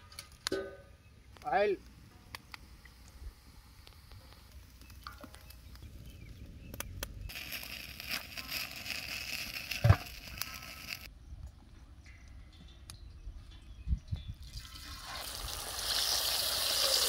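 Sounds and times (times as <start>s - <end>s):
steady hiss: 7.2s - 11.1s.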